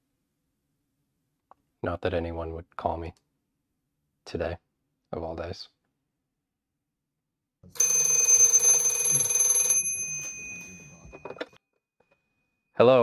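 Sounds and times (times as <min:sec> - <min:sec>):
rotary telephone bell ringing: 0:07.8 - 0:11.6.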